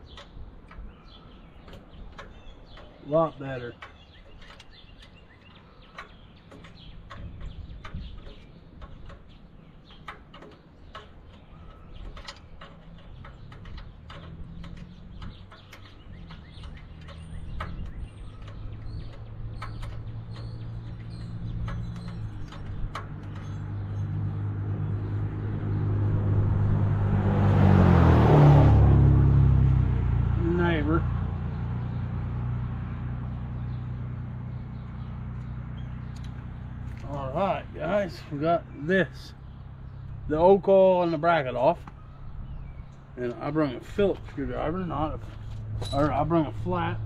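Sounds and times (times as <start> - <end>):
hand tools clicking and tapping: 0.0 - 24.4
birds chirping: 0.0 - 47.0
passing motor vehicle hum: 9.8 - 47.0.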